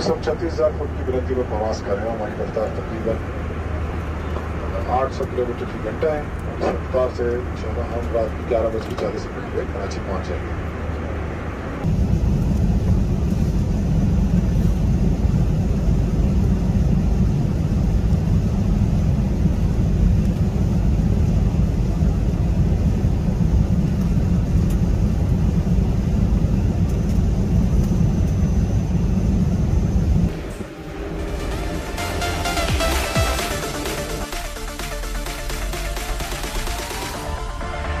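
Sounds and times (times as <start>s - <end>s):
airliner cabin engine rumble: 0.0s - 34.4s.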